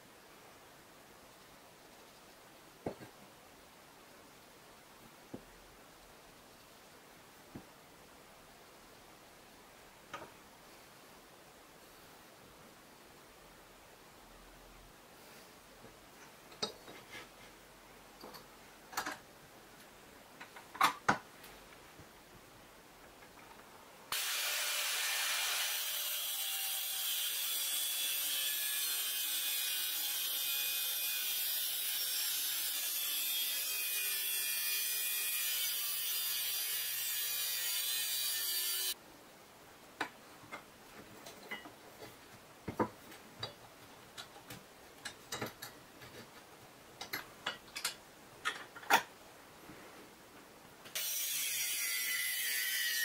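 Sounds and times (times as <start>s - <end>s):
angle grinder cutting steel: 24.1s - 39.0s, 51.0s - 53.0s.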